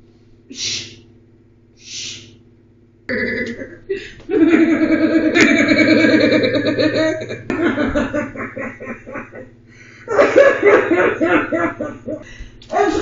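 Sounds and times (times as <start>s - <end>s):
person sleep-talking: 0.5s - 1.1s.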